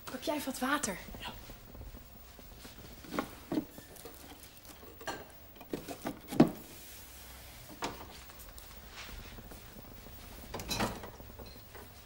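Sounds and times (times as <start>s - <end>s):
objects knocking and clunking: 1.0s - 6.8s, 7.7s - 8.5s, 9.2s - 12.0s.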